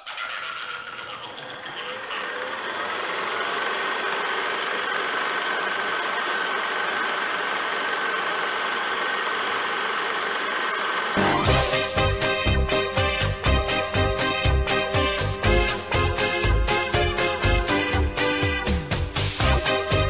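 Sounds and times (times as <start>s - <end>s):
film projector whirring: 0.0s - 20.0s
loud music: 11.2s - 20.0s.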